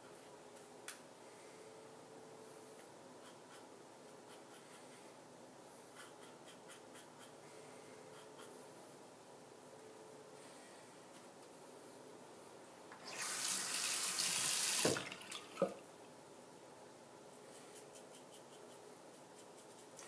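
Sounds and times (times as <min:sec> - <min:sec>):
razor scratching stubble: 0:17.5 - 0:20.0.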